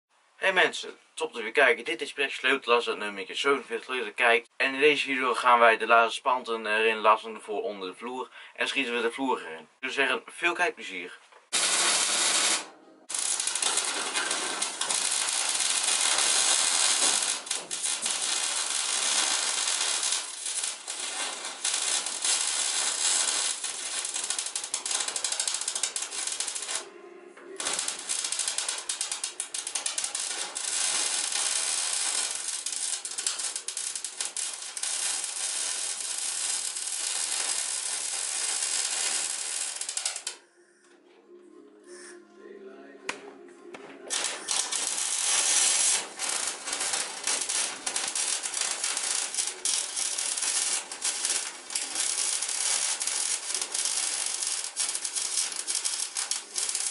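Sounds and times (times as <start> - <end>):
welder arc crackling: 11.5 - 26.9, 27.5 - 40.4, 44.1 - 56.9.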